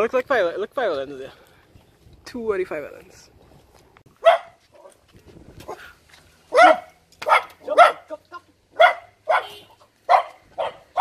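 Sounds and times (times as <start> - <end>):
dog barking: 4.2 - 4.9, 6.5 - 8.1, 8.8 - 11.0.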